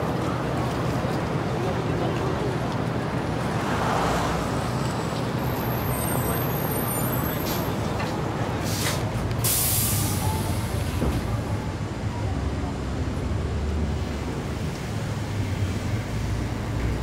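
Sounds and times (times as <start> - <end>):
heavy street traffic rumble: 0.0 - 17.0
air brakes hissing: 8.6 - 11.2.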